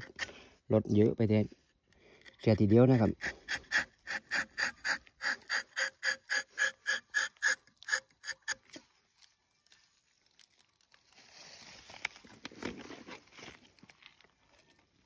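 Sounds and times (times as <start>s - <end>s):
knife rasping bark: 3.2s - 8.8s.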